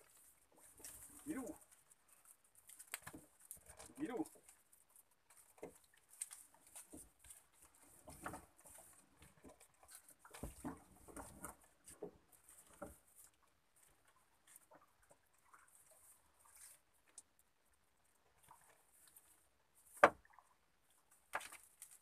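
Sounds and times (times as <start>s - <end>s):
wet net rustling: 0.0s - 17.4s, 18.4s - 22.0s.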